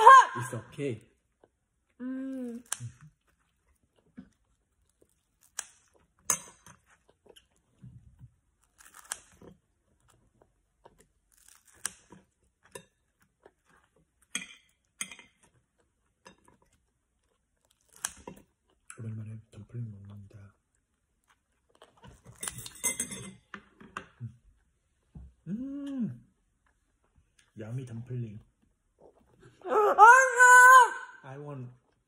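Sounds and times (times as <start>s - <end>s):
child chewing: 1.2s - 19.1s, 19.9s - 23.0s.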